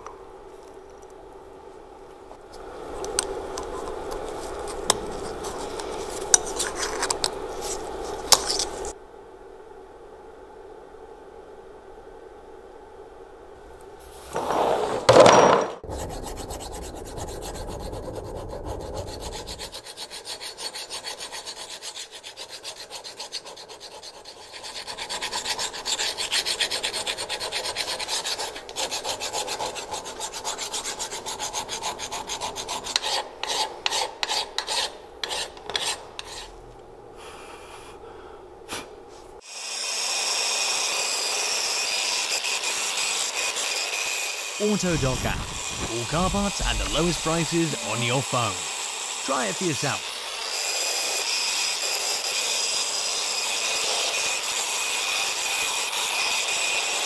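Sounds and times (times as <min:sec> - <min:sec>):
flat file rasping on metal: 0:15.8 - 0:36.6, 0:50.4 - 0:57.0
angle grinder with wire brush: 0:49.8 - 0:57.0.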